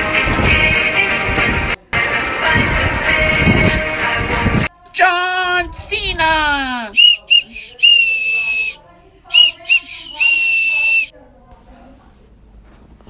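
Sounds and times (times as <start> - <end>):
shrill whistle toots: 6.9 - 11.1.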